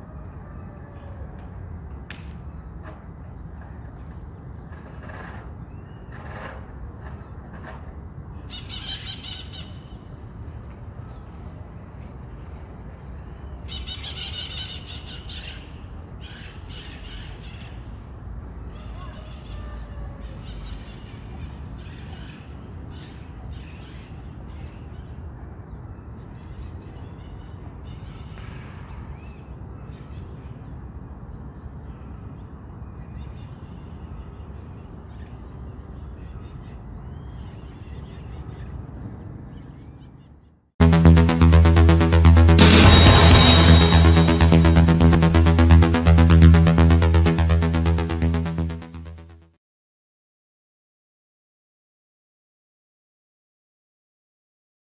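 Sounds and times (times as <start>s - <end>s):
birds squawking: 8.4s - 9.9s, 13.7s - 17.7s.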